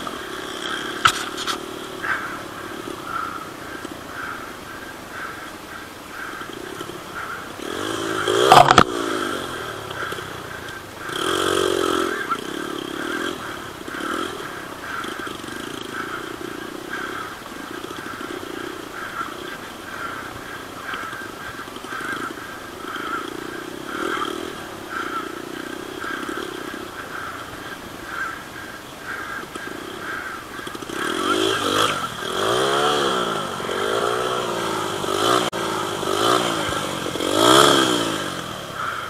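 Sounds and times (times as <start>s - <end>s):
dirt bike engines revving: 0.0s - 39.0s.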